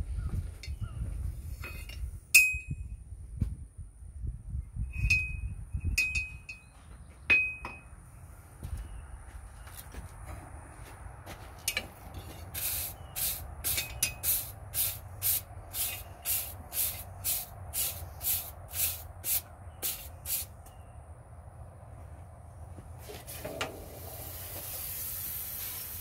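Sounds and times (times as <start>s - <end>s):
wire brush scrubbing steel bar: 12.2s - 20.5s.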